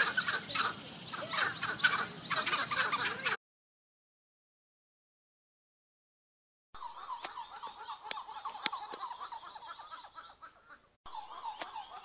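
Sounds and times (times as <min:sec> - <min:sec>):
monkeys calling: 0:00.0 - 0:03.4, 0:06.8 - 0:12.0.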